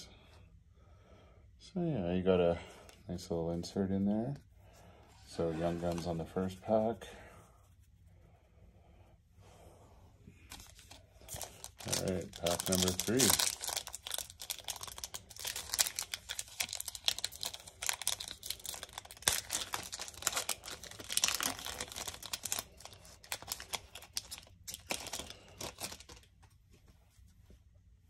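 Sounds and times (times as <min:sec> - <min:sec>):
foil wrapper crinkling and tearing: 0:10.5 - 0:26.4.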